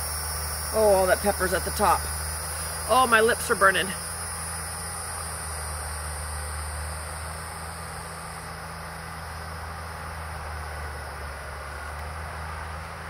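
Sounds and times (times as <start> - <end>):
insect drone: 0.0 - 13.0
low hum: 0.0 - 13.0.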